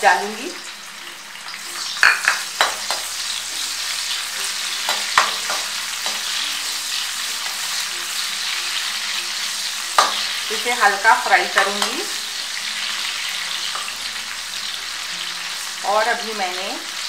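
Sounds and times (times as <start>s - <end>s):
onions sizzling in hot oil: 0.0s - 17.0s
metal spatula scraping a pan: 1.6s - 14.8s.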